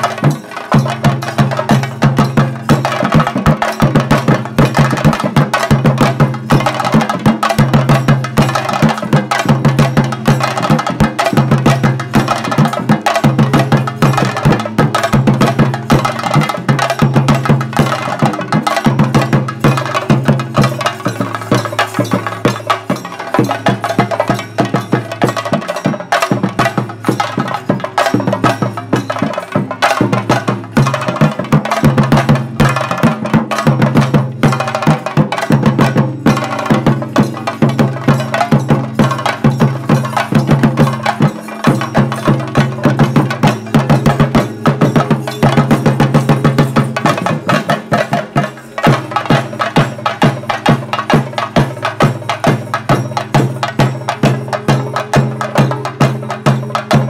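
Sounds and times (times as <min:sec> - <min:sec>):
fast loud drumming with sticks: 0:00.0 - 0:57.0.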